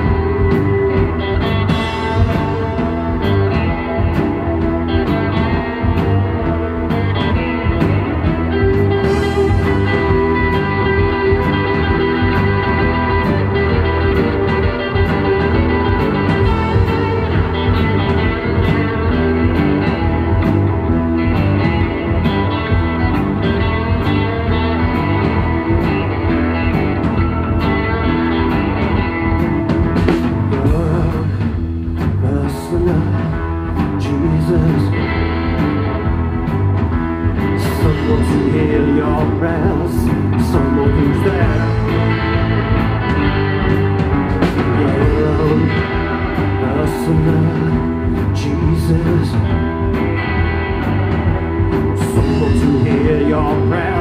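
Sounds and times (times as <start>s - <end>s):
drum kit: 0.0s - 54.0s
electric bass: 0.0s - 54.0s
electric guitars: 0.0s - 54.0s
man singing lead vocal: 30.2s - 35.6s, 37.4s - 42.7s, 44.4s - 50.0s, 51.9s - 54.0s.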